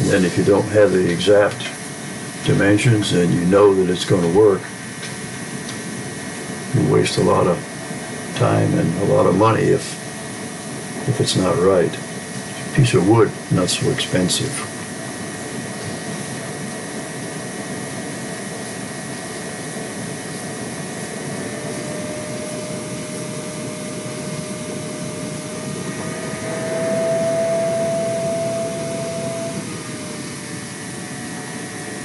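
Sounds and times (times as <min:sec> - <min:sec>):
compressed air hissing: 0:00.0 - 0:32.0
thin whistle: 0:25.5 - 0:30.4.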